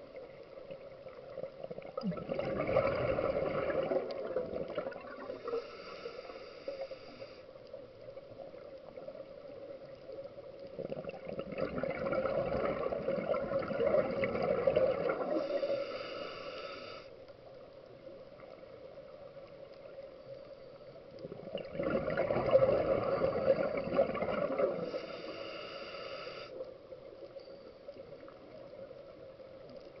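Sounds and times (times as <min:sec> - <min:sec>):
gurgling exhaled bubbles: 0:01.1 - 0:05.6, 0:10.7 - 0:15.8, 0:21.2 - 0:25.0
regulator air hiss: 0:05.3 - 0:07.6, 0:15.3 - 0:17.2, 0:24.8 - 0:26.6.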